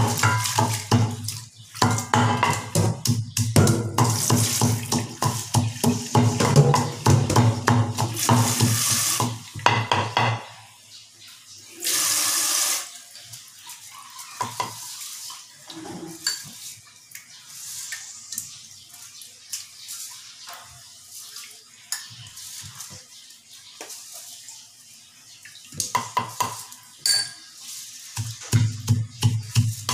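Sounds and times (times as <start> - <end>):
pestle pounding in mortar: 1.8 - 10.4, 28.2 - 29.9
salt pouring hiss: 8.2 - 9.4, 11.8 - 12.9.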